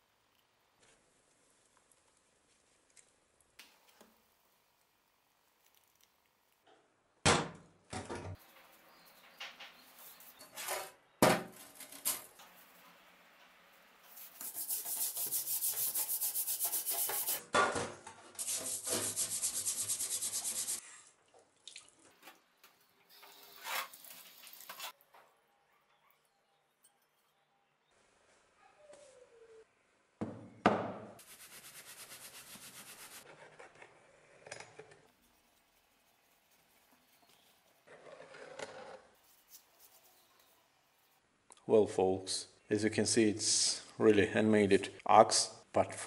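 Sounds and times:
brush scrubbing metal: 14.1 - 17.4, 18.4 - 20.8.

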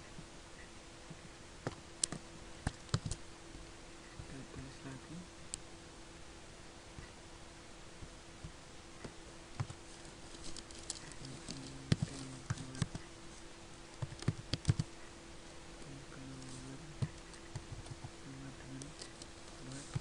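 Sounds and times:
computer keyboard typing: 2.0 - 3.2, 10.5 - 13.1, 14.0 - 14.9, 16.4 - 18.1, 18.7 - 20.0.

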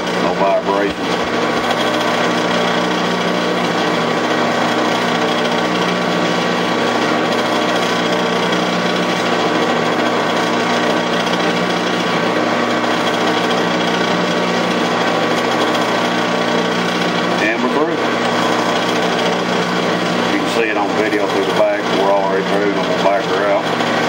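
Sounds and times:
metal lathe running: 0.0 - 24.0.

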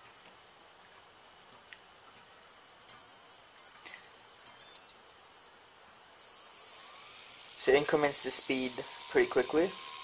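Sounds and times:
motor startup beeps: 2.9 - 5.1.

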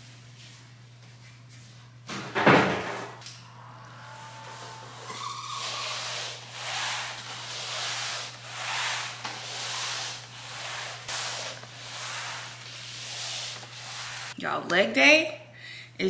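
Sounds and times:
mop pad swishing on hard floor: 5.6 - 14.4.

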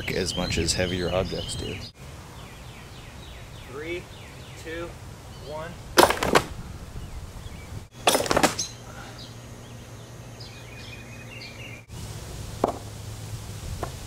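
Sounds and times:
birds chirping faintly: 0.0 - 12.1
catapult arm slamming wooden bang: 6.0 - 6.6, 8.0 - 8.7.

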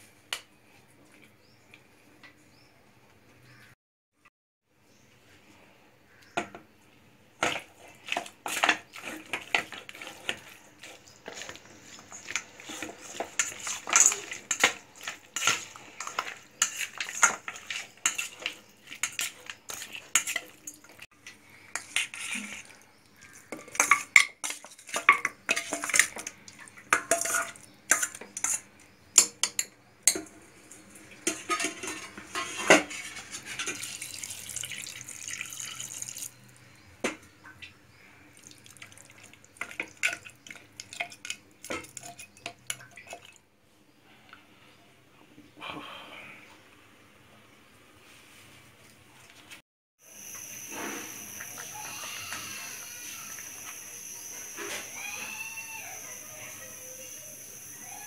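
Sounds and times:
metal utensils clinking in steel bowl: 7.4 - 21.1, 21.7 - 36.3, 39.1 - 43.4.

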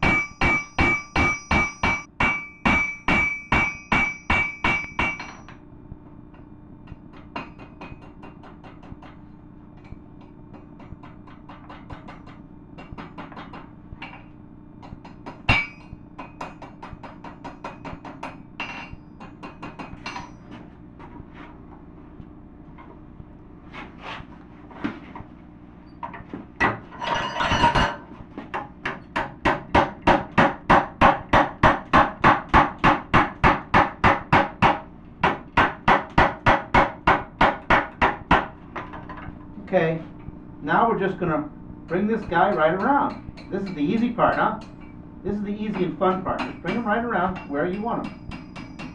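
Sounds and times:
hammer striking steel on anvil: 0.0 - 5.6, 6.9 - 9.2, 9.8 - 14.2, 14.8 - 20.6, 41.9 - 48.9
metal clatter: 26.9 - 28.0.

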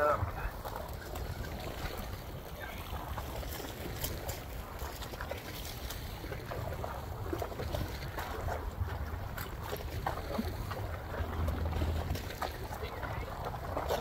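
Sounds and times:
waves lapping against rocks: 0.0 - 14.0
wind rumbling on microphone: 0.0 - 14.0.

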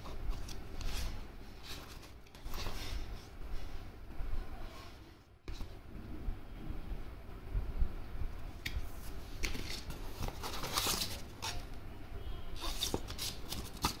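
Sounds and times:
paper rustling and crinkling: 0.0 - 3.3, 9.0 - 11.7, 12.6 - 14.0.

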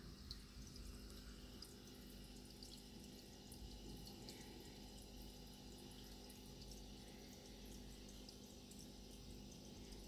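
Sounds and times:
aquarium water trickling: 0.0 - 10.0
low steady hum: 0.0 - 10.0.

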